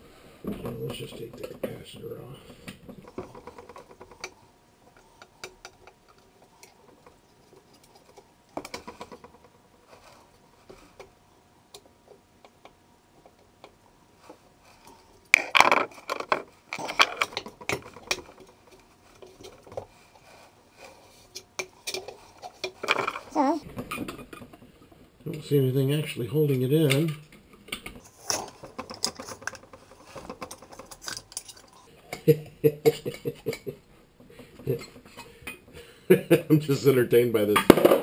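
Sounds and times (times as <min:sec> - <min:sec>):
metal rattling and scraping: 0:21.8 - 0:31.9.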